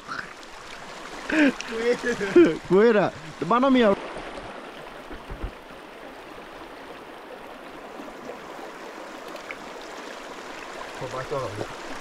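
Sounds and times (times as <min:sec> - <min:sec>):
stream rushing over rocks: 0:00.0 - 0:12.0
dull low bumps: 0:05.0 - 0:05.7.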